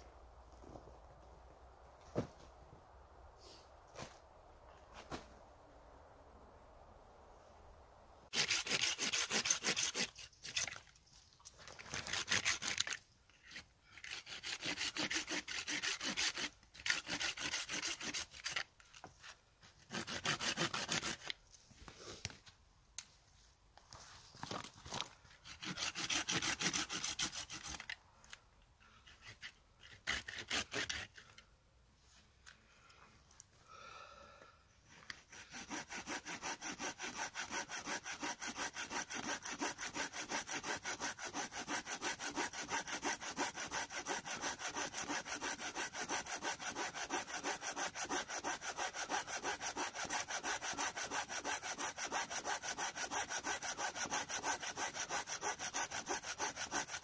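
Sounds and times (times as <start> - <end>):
hand saw cutting wood: 8.3 - 10.8, 11.7 - 18.7, 19.8 - 21.4, 25.3 - 28.0, 29.0 - 31.4, 35.1 - 57.0.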